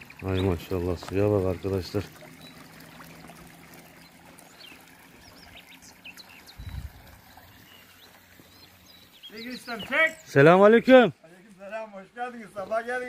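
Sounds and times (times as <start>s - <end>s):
fountain water splashing: 0.0s - 11.2s
high bird chirps: 4.0s - 10.4s.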